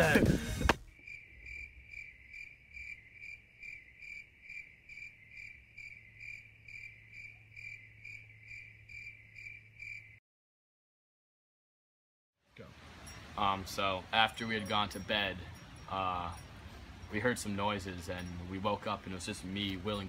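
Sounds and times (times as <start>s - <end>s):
cricket chirping: 0.9s - 10.2s.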